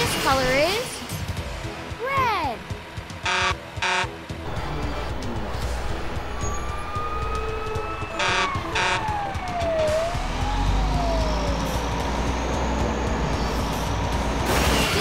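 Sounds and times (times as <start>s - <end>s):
horn blasts: 3.2s - 4.2s, 8.0s - 9.2s
fire engine siren: 3.3s - 14.5s
low engine rumble: 4.3s - 14.5s.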